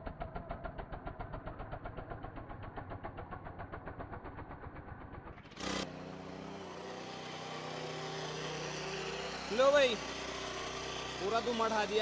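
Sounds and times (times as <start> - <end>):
power weeder engine chugging: 0.0 - 12.0
rotavator tilling soil: 5.5 - 12.0.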